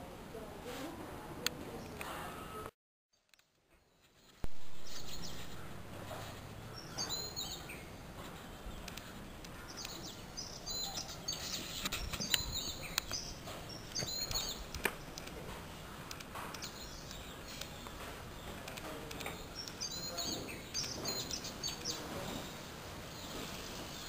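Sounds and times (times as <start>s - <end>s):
small birds chirping: 3.1s - 24.0s
steady outdoor hiss: 3.2s - 24.0s
sharp clicks: 8.8s - 10.0s, 13.9s - 15.4s, 16.0s - 21.0s.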